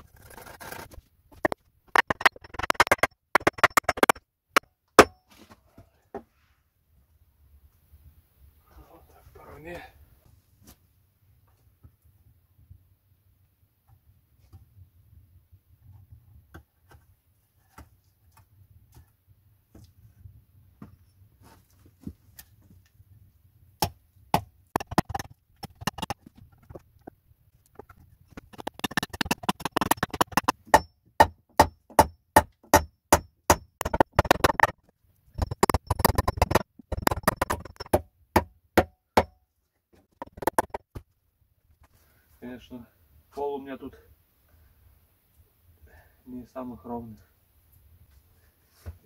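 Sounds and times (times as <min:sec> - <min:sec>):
hammer driving nails into wood: 0:01.4 - 0:04.2, 0:05.0 - 0:05.2, 0:27.8 - 0:34.7.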